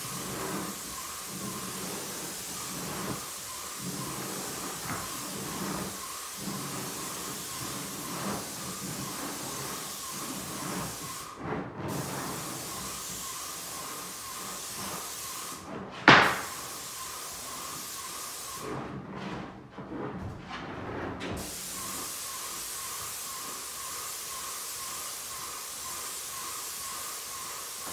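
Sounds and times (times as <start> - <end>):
paint spray gun hissing: 0.0 - 11.2, 12.2 - 18.6, 21.4 - 27.9
loud knock: 16.1 - 16.6.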